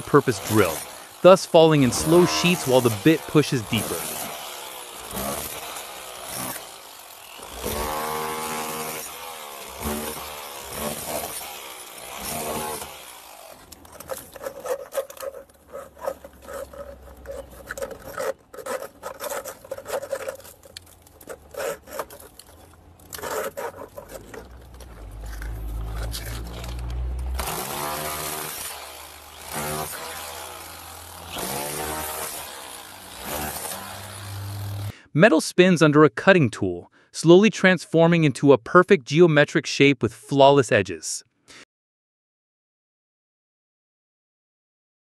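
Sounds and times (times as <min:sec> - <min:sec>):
hammer drill cutting brick: 0:00.0 - 0:35.0
plastic conduit clicking and scraping: 0:13.6 - 0:27.6.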